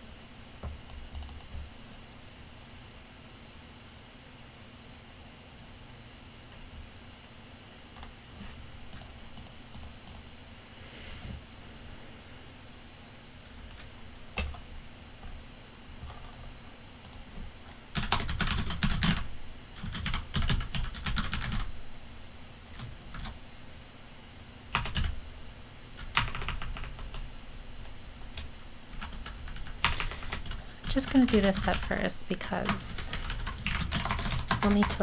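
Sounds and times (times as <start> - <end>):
typing on computer keyboard: 0.8 - 1.6, 8.9 - 10.2, 16.0 - 21.7, 22.8 - 23.4, 24.7 - 25.2, 26.0 - 27.2, 28.3 - 32.0, 32.6 - 35.0.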